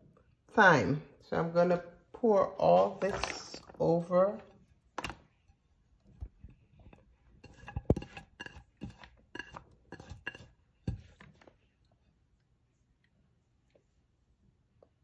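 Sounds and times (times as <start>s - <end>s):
dishes clinking: 6.9s - 11.2s.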